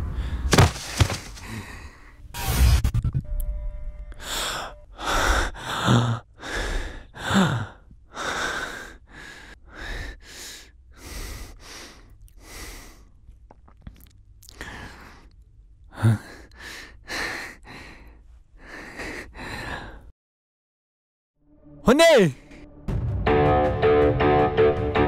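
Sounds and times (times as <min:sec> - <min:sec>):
man breathing heavily: 0:00.0 - 0:02.3, 0:04.2 - 0:13.3, 0:14.5 - 0:20.1.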